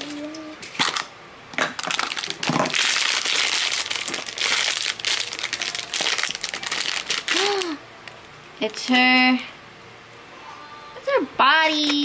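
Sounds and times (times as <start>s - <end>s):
plastic wrapper crinkling: 0.0s - 8.2s.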